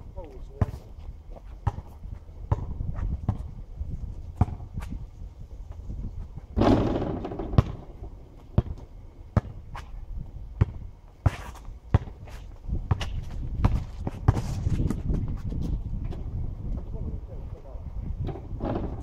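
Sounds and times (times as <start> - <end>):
basketball bouncing on asphalt: 0.6 - 3.6, 4.2 - 5.0, 5.7 - 9.9, 10.5 - 16.8
ball clanging off backboard and rim: 6.6 - 7.9.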